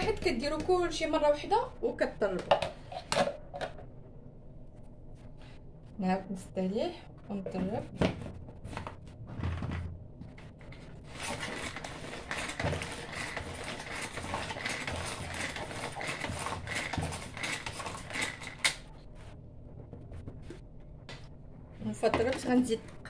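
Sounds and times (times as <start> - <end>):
hand mixer rattling whir: 11.1 - 18.8.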